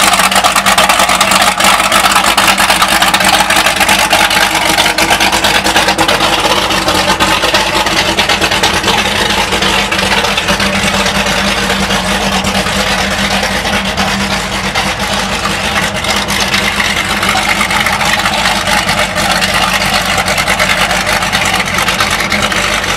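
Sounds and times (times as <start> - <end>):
boat engines idling: 0.0 - 22.9.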